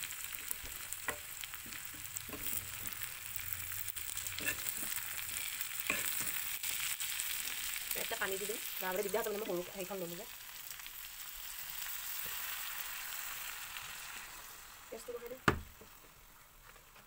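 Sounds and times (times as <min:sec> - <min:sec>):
noodles sizzling in a pan: 0:00.0 - 0:17.0
spatula scraping a pan: 0:04.3 - 0:06.8.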